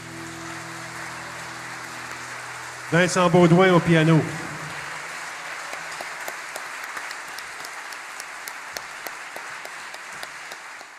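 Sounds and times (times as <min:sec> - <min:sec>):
audience applauding: 0:00.0 - 0:10.9.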